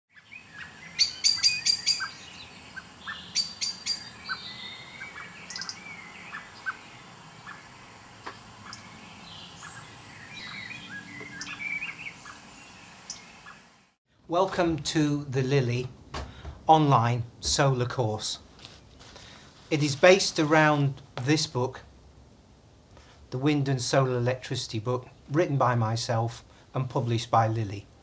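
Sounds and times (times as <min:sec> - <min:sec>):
wild birds singing and calling: 0:00.1 - 0:13.8.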